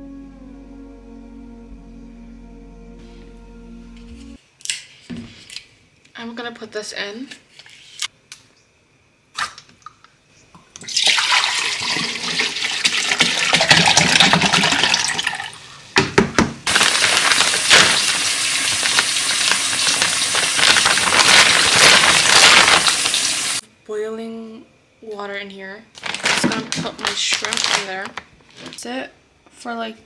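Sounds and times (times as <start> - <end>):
water splashing into container: 10.8 - 15.4
knocks: 16.0 - 16.6.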